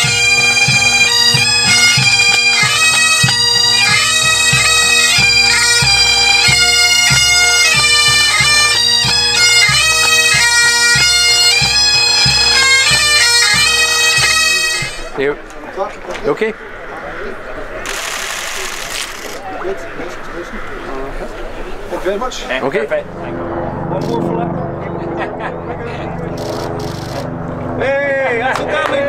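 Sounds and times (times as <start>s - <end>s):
drums beating time: 0.0s - 15.2s
bagpipes playing melody: 0.0s - 15.3s, 17.9s - 19.4s.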